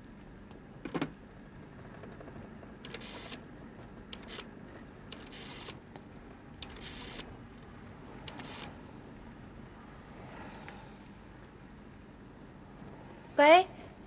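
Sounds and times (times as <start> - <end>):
rotary dial ticking back: 2.8 - 3.4, 4.1 - 4.5, 5.1 - 5.8, 6.6 - 7.3, 8.3 - 8.7.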